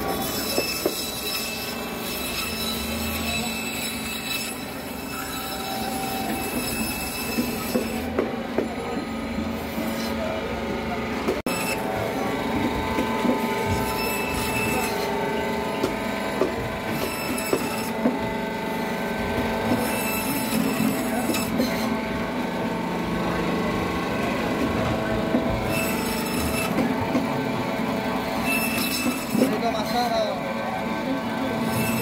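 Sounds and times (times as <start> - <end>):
blade scraping and cutting fish: 0.0 - 8.1, 13.7 - 15.2, 19.7 - 21.9, 28.4 - 29.6.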